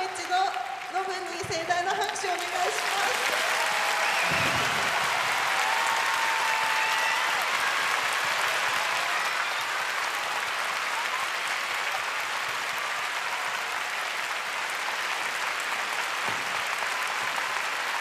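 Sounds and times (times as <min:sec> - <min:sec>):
crowd applauding: 0:00.0 - 0:18.0.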